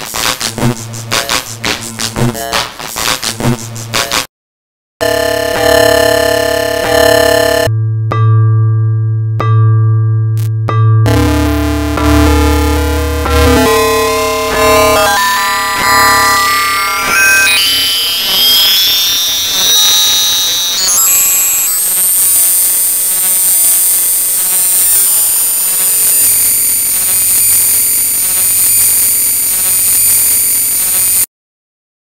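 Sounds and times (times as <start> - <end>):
layered synthetic tones: 11.1 - 25.2
shrill high tones: 11.1 - 27.3.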